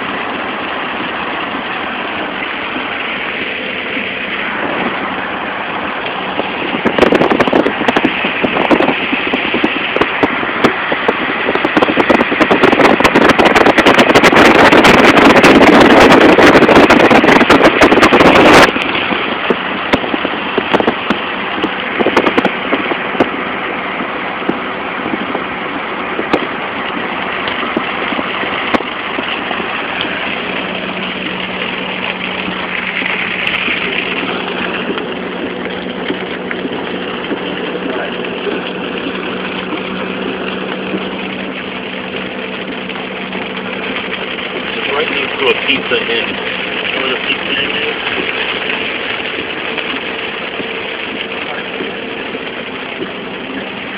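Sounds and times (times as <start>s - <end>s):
loud rushing crackling noise: 0.0s - 53.9s
vehicle engine humming: 0.0s - 53.9s.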